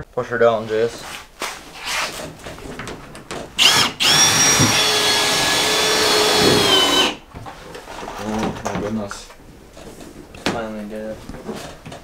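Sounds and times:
cordless drill running: 0:03.6 - 0:07.2.

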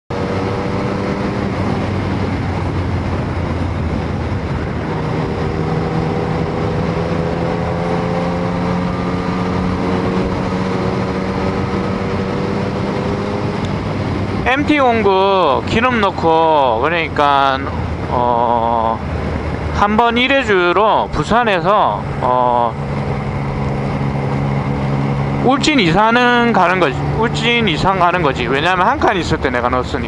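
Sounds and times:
motorcycle engine running: 0:00.1 - 0:14.6, 0:22.0 - 0:29.1
wind and road noise: 0:00.1 - 0:30.0.

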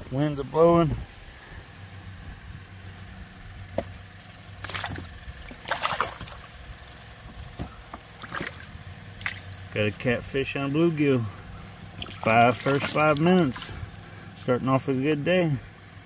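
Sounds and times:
aerator pump humming: 0:00.0 - 0:16.0
water sloshing and bubbling: 0:03.7 - 0:10.5, 0:11.3 - 0:14.4.

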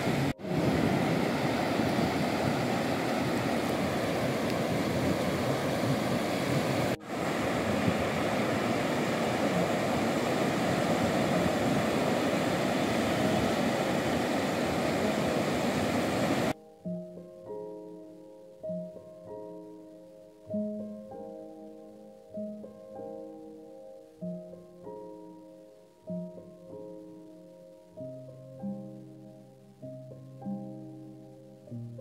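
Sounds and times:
surf breaking on beach: 0:00.0 - 0:16.6.

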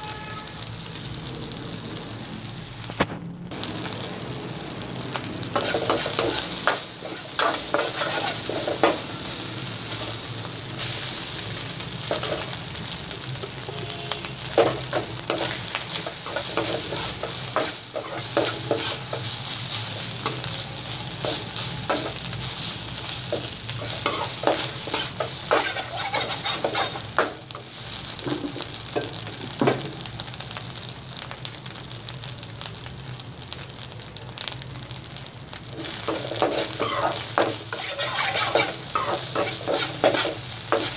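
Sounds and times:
rice sizzling in a wok: 0:00.0 - 0:40.9
metal spatula scraping wok: 0:05.5 - 0:09.2, 0:14.6 - 0:27.8, 0:35.8 - 0:40.9.

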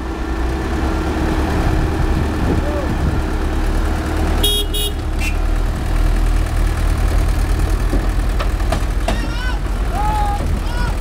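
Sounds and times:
heavy vehicle engines rumbling: 0:00.0 - 0:11.0
horn toots: 0:04.4 - 0:05.4.

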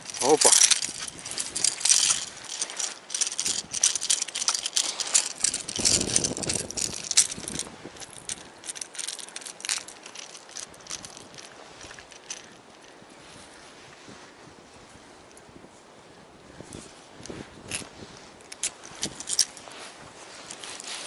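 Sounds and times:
dry leaves crackling: 0:00.0 - 0:12.5
fishing tackle clattering: 0:00.0 - 0:12.9, 0:18.5 - 0:19.6.

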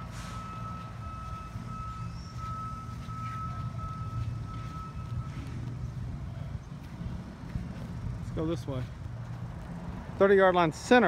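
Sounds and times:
reversing alarm beeping: 0:00.0 - 0:06.4.

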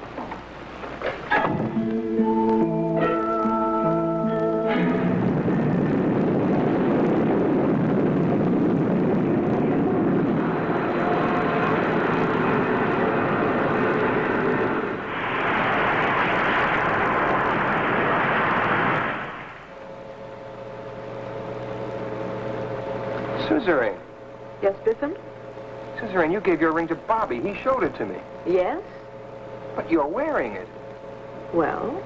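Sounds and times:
rocket engine roar: 0:01.3 - 0:24.8.

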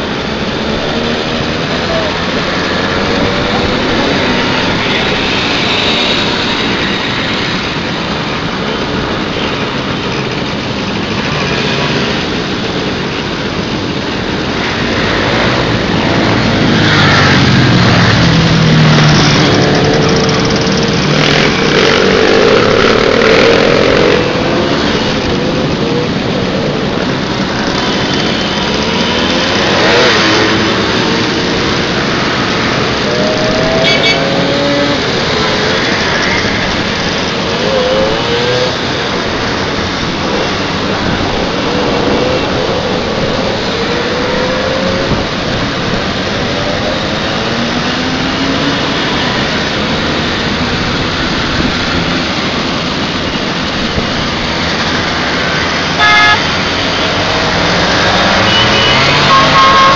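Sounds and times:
two-stroke moped engines revving: 0:00.0 - 0:59.9.

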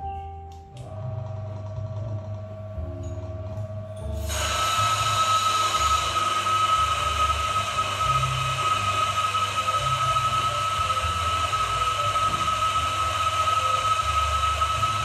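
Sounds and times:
coffee grinder whining: 0:04.0 - 0:15.0.

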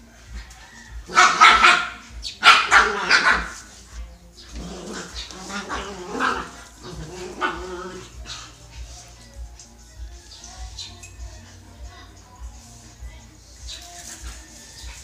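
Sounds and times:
dogs barking: 0:00.0 - 0:09.6, 0:13.6 - 0:15.0.

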